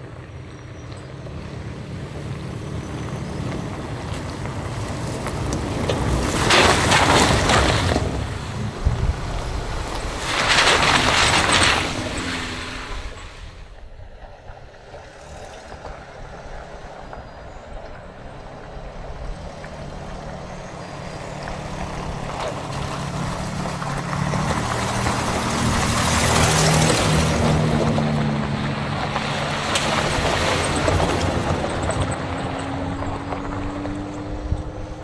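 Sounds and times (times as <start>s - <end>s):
truck engine hum: 0.0s - 35.0s
wind rushing over microphone: 3.7s - 35.0s.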